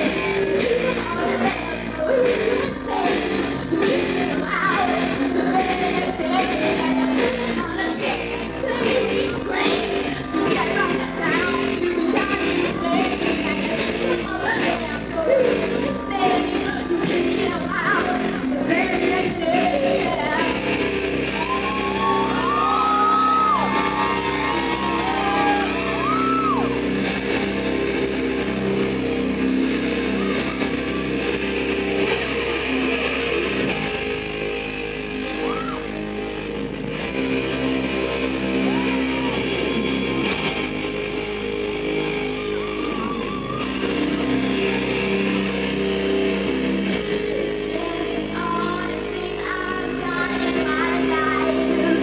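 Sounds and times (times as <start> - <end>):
high wailing guitar glides: 0.0 - 52.0
live rock band playing: 15.4 - 52.0.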